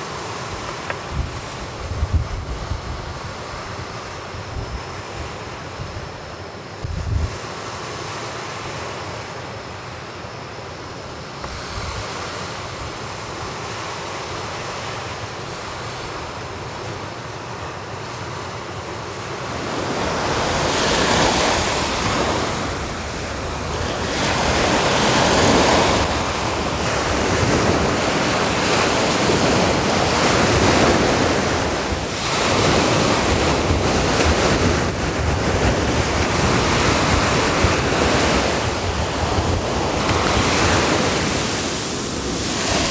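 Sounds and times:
wind buffeting microphone: 0.5 - 6.2, 6.8 - 7.4, 19.4 - 42.9
sea waves breaking: 11.2 - 42.9.

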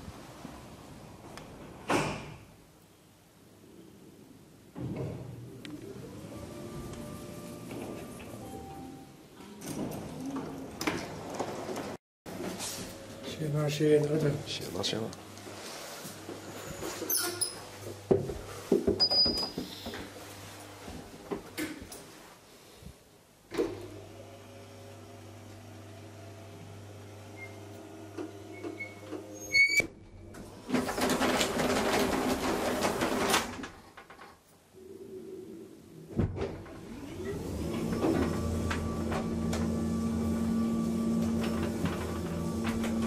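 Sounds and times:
automatic door mechanism running: 30.3 - 33.9, 36.6 - 43.0.

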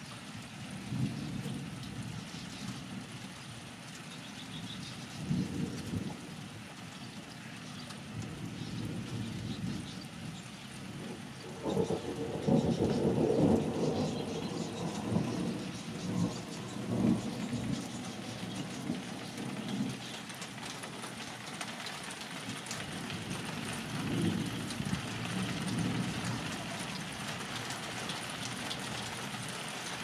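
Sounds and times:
rain pattering: 0.0 - 30.0
thunder rumbling: 10.9 - 20.2, 22.4 - 29.4.

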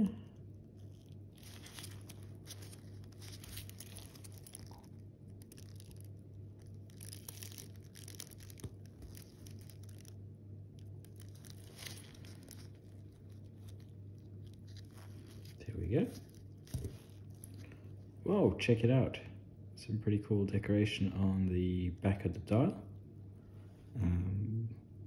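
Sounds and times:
steady low hum: 0.0 - 25.0
faint rustling: 0.7 - 10.2, 10.8 - 18.2.

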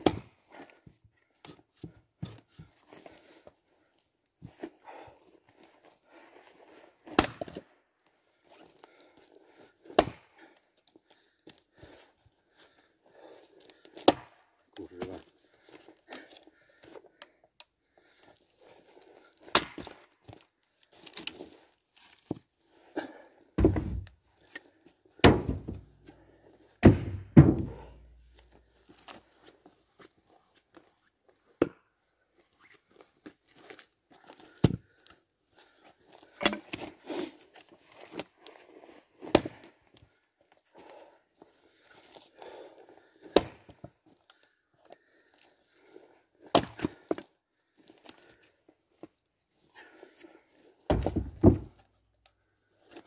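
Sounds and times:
heavy wooden thuds: 23.6 - 24.1, 25.2 - 25.9, 26.8 - 28.0, 50.9 - 51.8.

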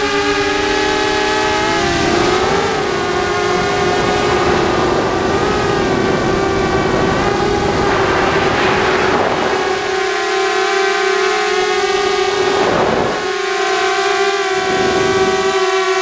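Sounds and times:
wind buffeting microphone: 0.0 - 13.4, 14.6 - 15.5
quadcopter motors whining: 0.0 - 16.0.

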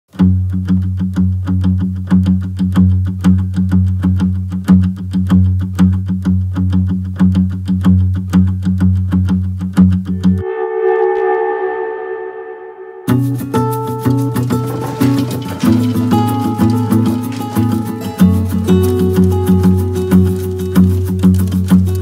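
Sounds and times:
plucked notes: 0.2 - 22.0
low drone: 10.1 - 16.3.

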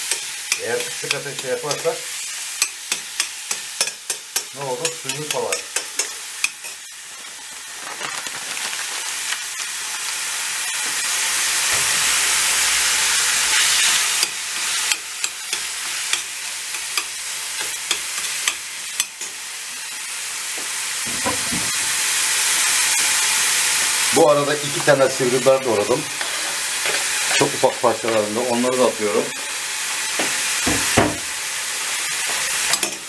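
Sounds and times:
metal spoon scraping a pan: 0.0 - 6.9, 13.4 - 19.9, 24.7 - 28.3, 32.2 - 33.0
meat sizzling in a frying pan: 0.0 - 33.0.

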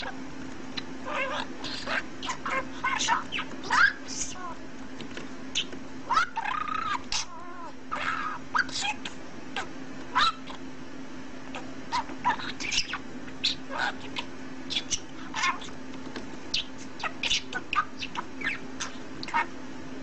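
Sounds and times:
budgerigar chirping: 0.8 - 4.5, 5.6 - 9.1, 10.1 - 10.6, 11.6 - 15.8, 16.5 - 19.6.

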